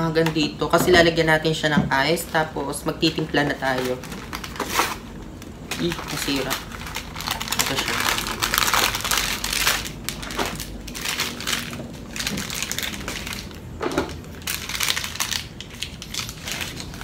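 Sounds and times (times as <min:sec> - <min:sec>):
plastic sachets rustling: 0:02.1 - 0:17.0
paperboard box crinkling: 0:05.7 - 0:17.0.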